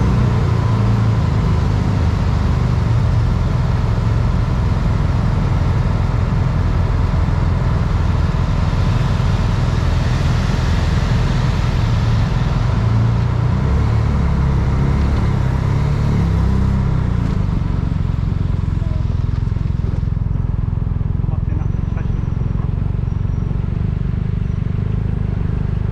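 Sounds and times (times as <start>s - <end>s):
engine rumbling: 0.0s - 25.9s.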